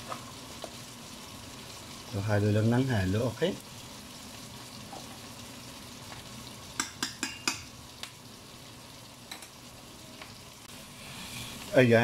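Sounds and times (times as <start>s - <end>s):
fish sizzling in a frying pan: 0.0s - 12.0s
spoon knocking against pot: 6.8s - 7.7s.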